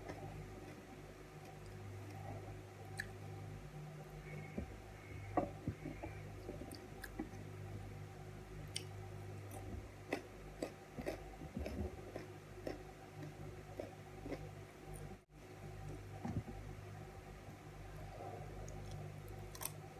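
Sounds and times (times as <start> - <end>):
steady low hum: 0.0 - 19.9
person chewing food: 9.5 - 15.1, 18.7 - 19.8.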